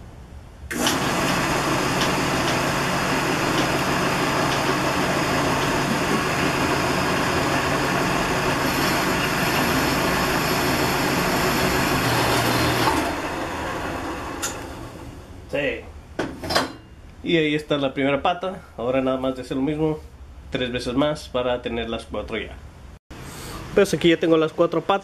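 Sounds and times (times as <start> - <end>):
band saw cutting metal: 0.7 - 15.0.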